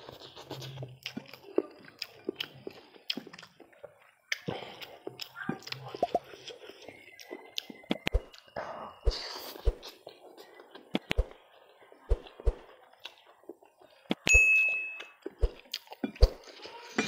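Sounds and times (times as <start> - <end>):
chewing and slurping: 0.0 - 14.3, 15.2 - 16.9
notification bell ding: 14.3 - 15.2.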